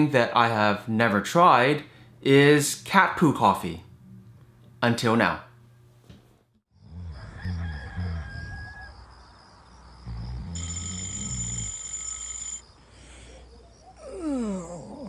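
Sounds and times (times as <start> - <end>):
rooster crowing: 6.8 - 9.5
steady high ringing: 10.6 - 12.7.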